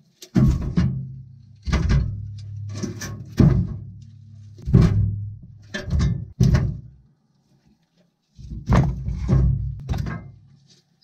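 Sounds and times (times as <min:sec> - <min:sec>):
wood knocking in metal firebox: 0:00.2 - 0:07.0, 0:08.5 - 0:10.4.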